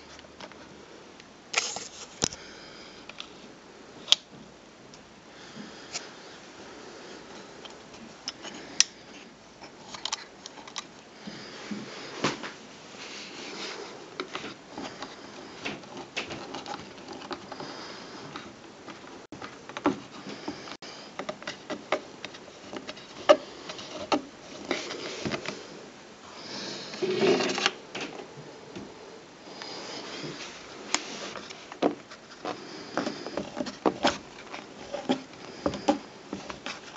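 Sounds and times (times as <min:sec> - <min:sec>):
hand handling metal lamp: 0:13.6 - 0:17.6.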